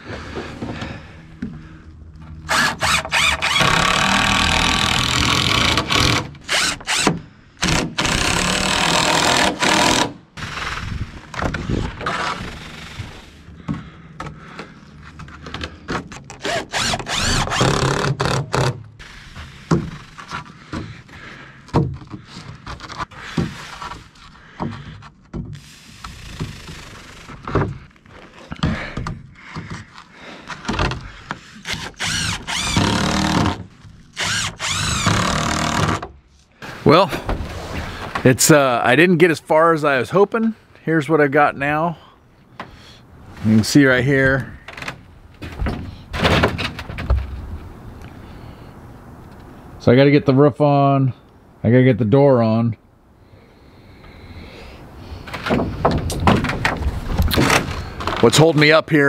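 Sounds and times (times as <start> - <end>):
cordless drill driving screws: 2.5 - 13.4, 16.4 - 20.2, 31.6 - 36.1.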